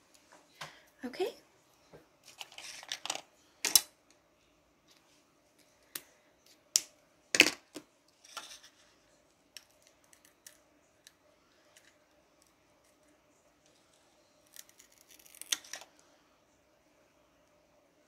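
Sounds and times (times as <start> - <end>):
small objects clicking and tapping: 9.5 - 13.1.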